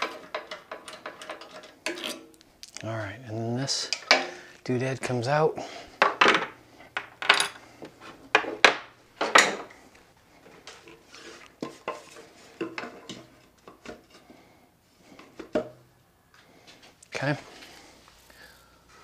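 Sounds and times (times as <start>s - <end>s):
metal tools clattering on wood: 0.0s - 2.4s, 3.8s - 4.4s, 6.0s - 9.7s.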